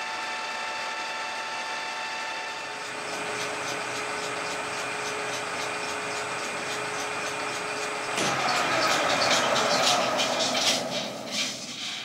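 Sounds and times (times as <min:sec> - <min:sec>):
lathe humming and whining: 0:00.0 - 0:12.0.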